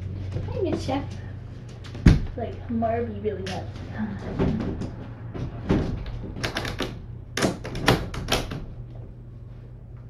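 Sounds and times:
steady low hum: 0:00.0 - 0:10.0
sharp clicks and knocks: 0:03.4 - 0:09.0.

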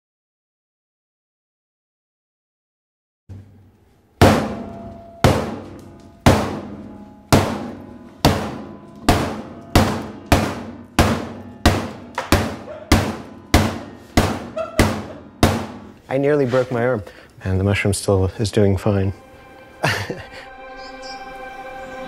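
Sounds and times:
booming heavy blows with echo: 0:04.2 - 0:16.0.

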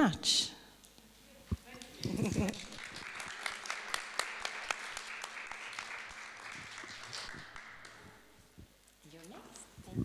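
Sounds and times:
audience applauding: 0:02.4 - 0:08.4.

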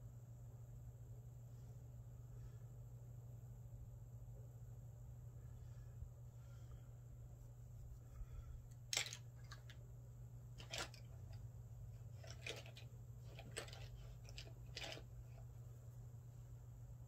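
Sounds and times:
steady low hum: 0:00.0 - 0:17.0
clicks and rustles of handling: 0:08.7 - 0:09.9, 0:10.6 - 0:15.6.

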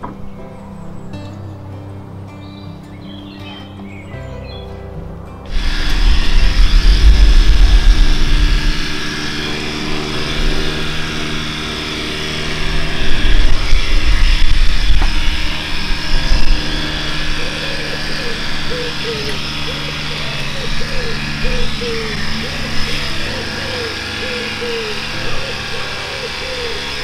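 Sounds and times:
electric clippers motor buzz: 0:05.5 - 0:27.0.

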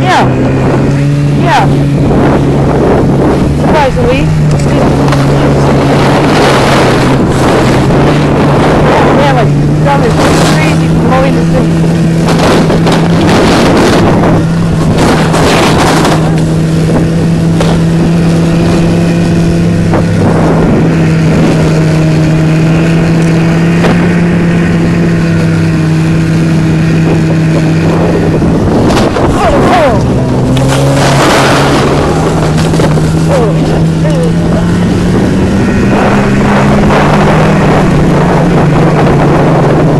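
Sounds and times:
rushing wind and snow: 0:00.0 - 0:39.9
snowmobile engine: 0:00.0 - 0:39.9.

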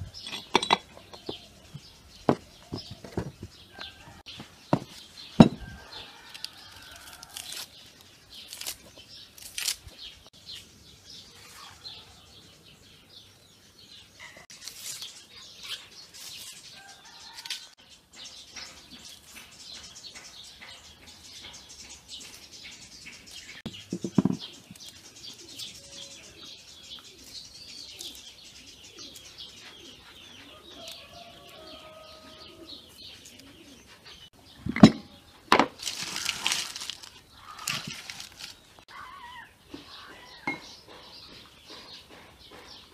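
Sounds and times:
birds calling: 0:00.0 - 0:42.9
onion skins crackling: 0:06.2 - 0:10.3, 0:14.5 - 0:17.8, 0:35.6 - 0:38.9.

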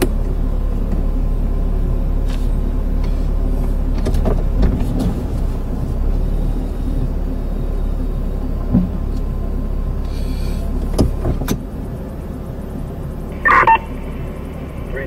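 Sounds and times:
car engine idling: 0:00.0 - 0:15.0
sharp clicks and knocks: 0:10.8 - 0:11.7.

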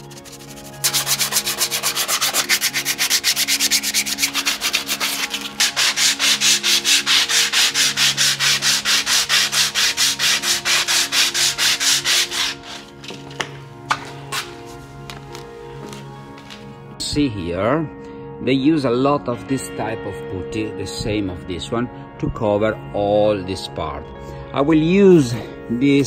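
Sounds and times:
sandpaper scrubbing fibreglass: 0:00.0 - 0:12.9.

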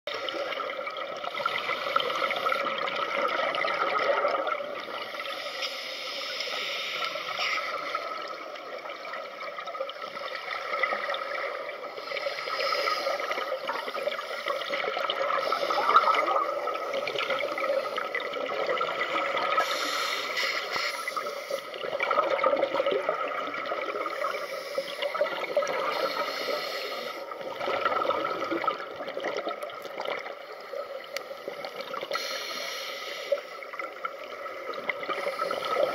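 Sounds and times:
underwater bubbling of diver exhalations: 0:00.2 - 0:05.0, 0:10.6 - 0:24.4, 0:25.0 - 0:30.4.

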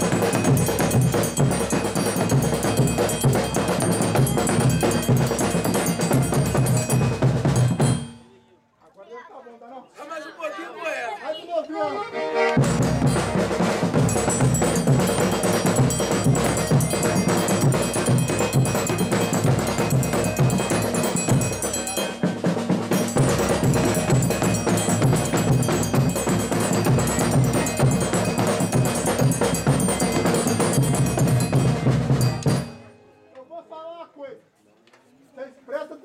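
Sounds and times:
large drums beating: 0:00.0 - 0:08.2, 0:12.6 - 0:32.8.

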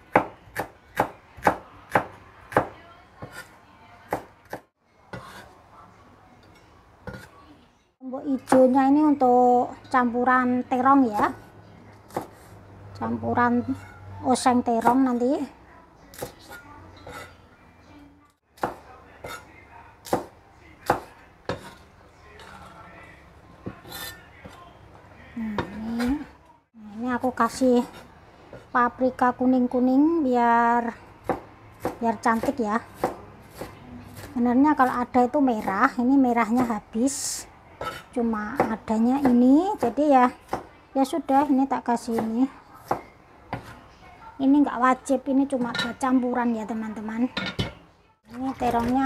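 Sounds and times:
soft scraping on cutting board: 0:03.2 - 0:03.6, 0:05.1 - 0:05.6
cleaver chopping on cutting board: 0:31.2 - 0:34.3.

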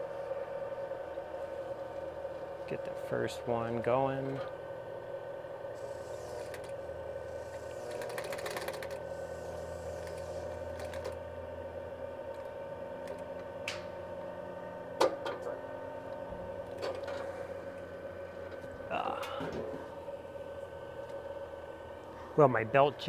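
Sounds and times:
sewing machine motor humming: 0:05.6 - 0:13.6
rapid stitching ticks: 0:07.8 - 0:09.0, 0:10.8 - 0:11.2.

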